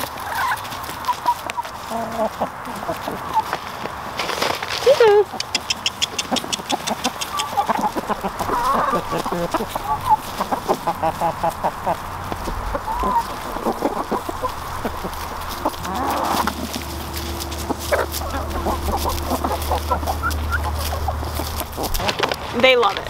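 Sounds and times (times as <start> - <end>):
hens clucking: 0.0 - 23.0
low steady hum: 7.7 - 23.0.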